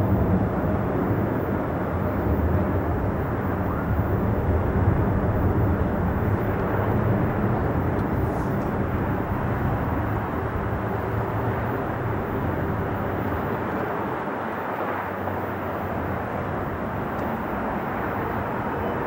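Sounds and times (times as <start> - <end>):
jet engines roaring: 0.0 - 19.0.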